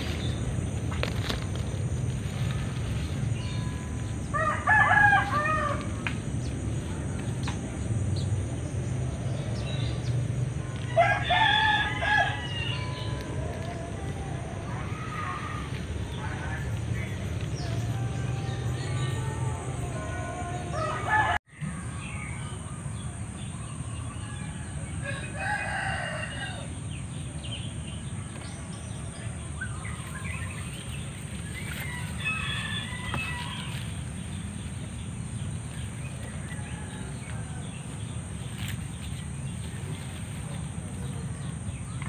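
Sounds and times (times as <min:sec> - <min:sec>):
steady low rumble: 0:00.0 - 0:10.9, 0:26.8 - 0:42.0
rooster crowing: 0:04.2 - 0:06.0, 0:10.8 - 0:13.9, 0:19.1 - 0:21.4, 0:24.1 - 0:26.8, 0:31.4 - 0:34.3, 0:36.0 - 0:38.2.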